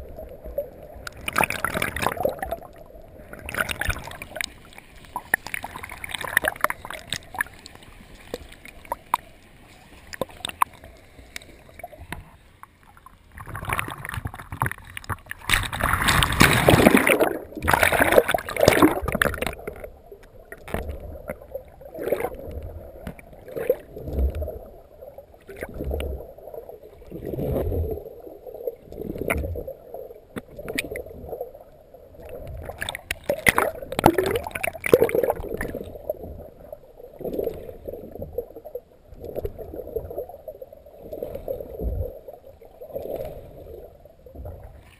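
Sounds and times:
pool water splashing: 1.1s - 12.0s, 12.9s - 19.9s, 32.7s - 36.0s.

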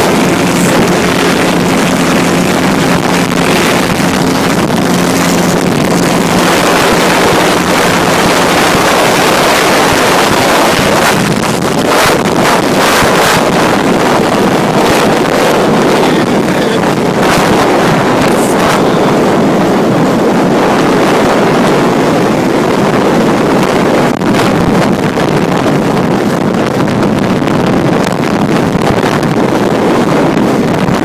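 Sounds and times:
wind buffeting microphone: 0.0s - 31.0s.

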